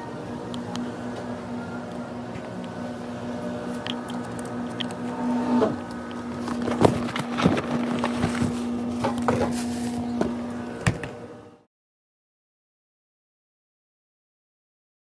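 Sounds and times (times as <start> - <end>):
low hum: 0.0 - 11.6
plastic bag crinkling: 5.8 - 10.0.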